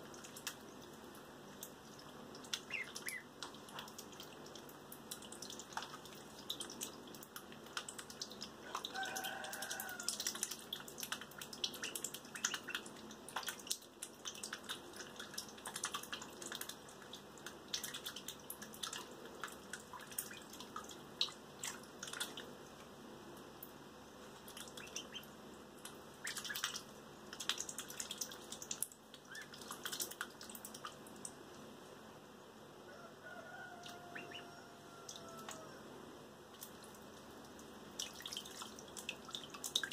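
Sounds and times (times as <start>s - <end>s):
ducklings splashing in water: 0.0s - 22.8s, 24.3s - 31.4s, 33.5s - 35.7s, 36.5s - 39.9s
duckling peep: 2.5s - 3.9s, 11.8s - 12.9s, 24.7s - 25.3s, 26.2s - 26.8s, 29.3s - 29.6s, 34.1s - 34.6s.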